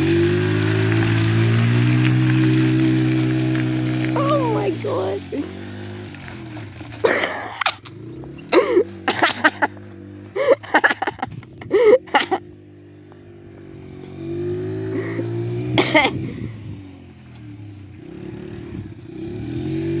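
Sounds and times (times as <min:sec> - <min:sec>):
small atv engine revving: 0:00.0 - 0:20.0
person's voice: 0:04.1 - 0:05.5.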